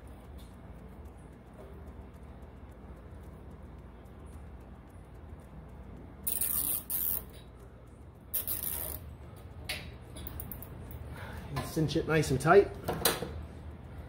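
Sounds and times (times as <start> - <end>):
zip tie ratcheting: 6.2 - 7.4, 8.3 - 9.1.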